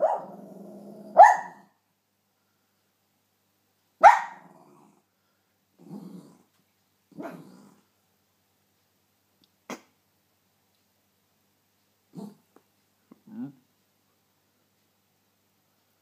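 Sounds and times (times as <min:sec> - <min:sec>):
dog barking: 0:00.0 - 0:00.4, 0:01.1 - 0:01.8, 0:04.0 - 0:04.6.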